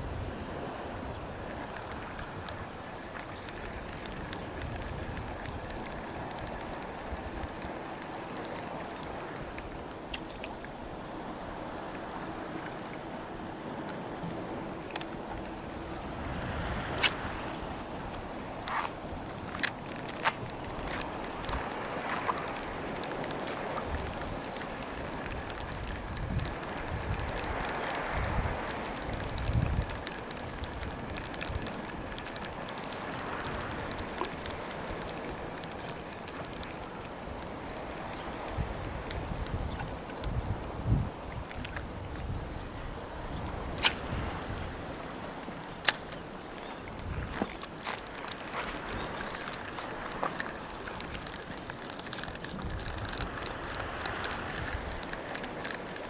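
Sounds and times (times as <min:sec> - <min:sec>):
thin high whine: 0:00.0 - 0:56.0
water washing at shoreline: 0:00.0 - 0:56.0
wind: 0:00.0 - 0:56.0
faint clicks: 0:01.5 - 0:10.8, 0:13.8 - 0:15.9, 0:16.9 - 0:42.7, 0:45.0 - 0:56.0
light clicks: 0:14.8 - 0:15.6, 0:45.4 - 0:56.0.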